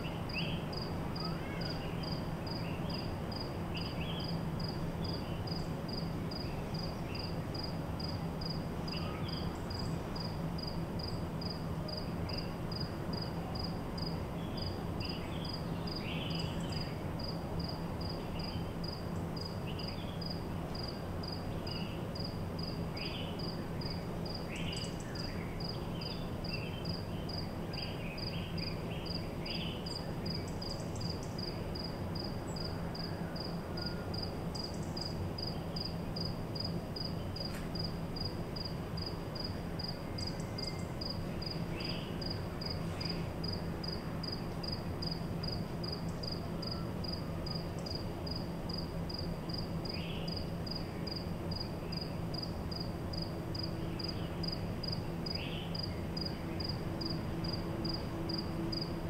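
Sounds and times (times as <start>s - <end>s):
faint bird calls: 0.0s - 3.1s, 8.9s - 10.0s
insect chirping: 0.0s - 59.0s
ventilation system hum: 0.0s - 59.0s.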